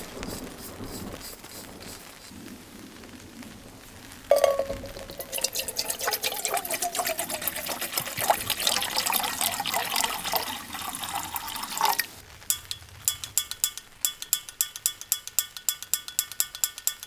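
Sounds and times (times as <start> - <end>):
water pouring into metal pot: 4.3 - 12.2.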